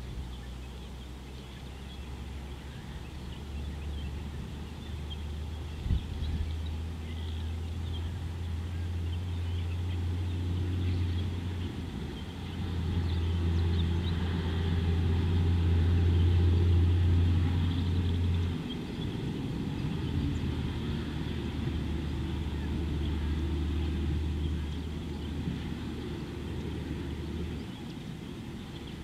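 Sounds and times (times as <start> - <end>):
faint bird chirps: 0.0 - 14.2
low mechanical hum: 0.0 - 29.0.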